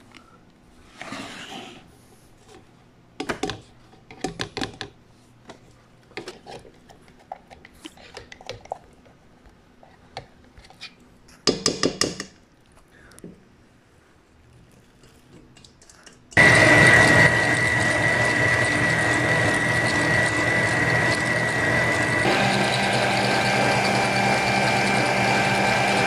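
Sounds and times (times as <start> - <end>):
spatula working in bowl: 16.4 - 26.0.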